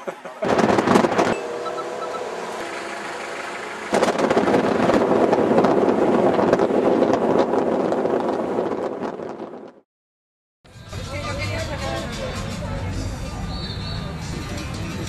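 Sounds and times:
car road noise: 0:00.0 - 0:09.8
wind buffeting the microphone: 0:03.8 - 0:09.8.

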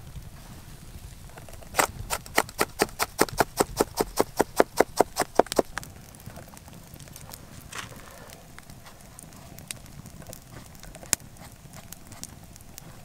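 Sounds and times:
knife chopping on wooden board: 0:01.8 - 0:05.6.

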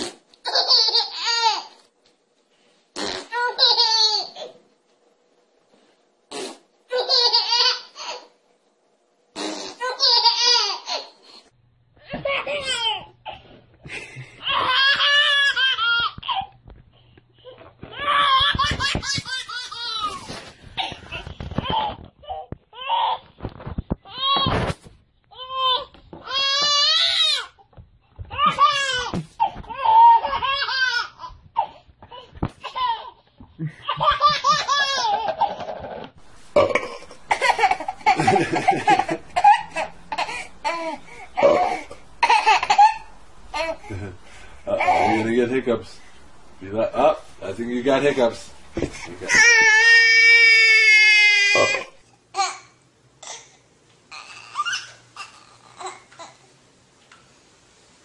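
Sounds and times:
baby laughing: 0:00.4 - 0:01.8, 0:03.2 - 0:04.6, 0:06.9 - 0:08.3, 0:09.5 - 0:11.2, 0:14.4 - 0:16.5, 0:17.9 - 0:23.2, 0:28.3 - 0:36.0, 0:36.9 - 0:46.1, 0:48.4 - 0:52.6.

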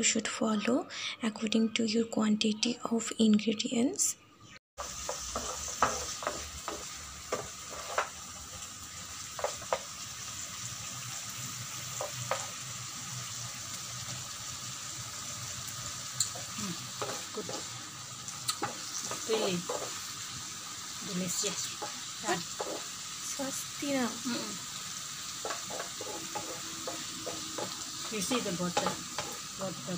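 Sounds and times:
spatula scraping and knocking pan: 0:04.8 - 0:10.1, 0:11.8 - 0:12.7, 0:16.4 - 0:17.8, 0:18.6 - 0:20.2, 0:21.4 - 0:23.0, 0:25.3 - 0:29.9
vegetables sizzling in frying pan: 0:04.8 - 0:29.9.

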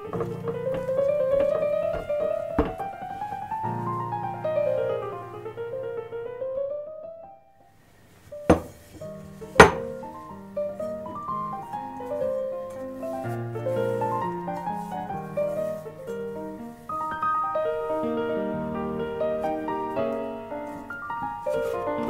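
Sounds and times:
background piano music: 0:00.0 - 0:22.0
sharp knocks: 0:08.5 - 0:08.8, 0:09.6 - 0:10.0.

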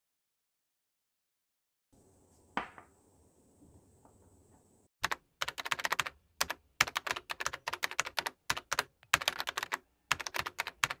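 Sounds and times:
keyboard typing: 0:05.0 - 0:11.0.

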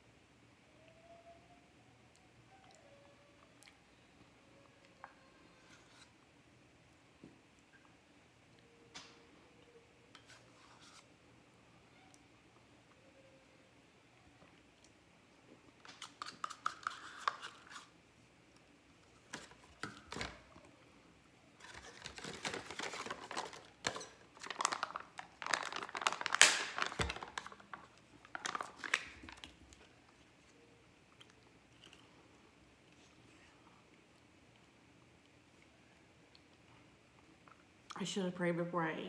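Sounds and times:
plastic packaging crinkling and tearing: 0:21.6 - 0:29.9.

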